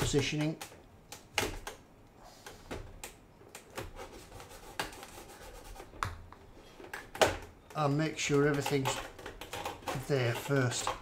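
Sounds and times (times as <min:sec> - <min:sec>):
plastic parts scraping and clicking: 0:06.7 - 0:11.0.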